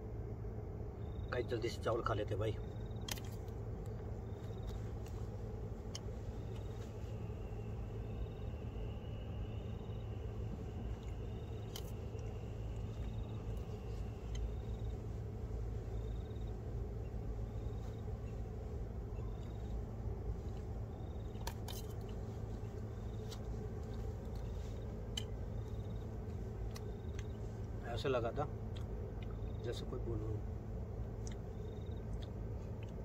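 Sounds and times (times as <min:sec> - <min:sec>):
low rumble: 0:00.0 - 0:29.7
faint high chirp: 0:06.0 - 0:26.1.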